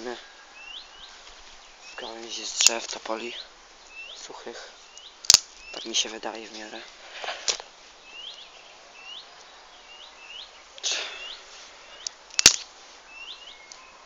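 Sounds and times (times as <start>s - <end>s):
bird chirping: 0.0s - 7.2s, 8.0s - 14.0s
sticks rustling: 1.1s - 8.6s, 10.8s - 13.8s
stick snapping: 5.0s - 5.8s, 12.0s - 12.7s.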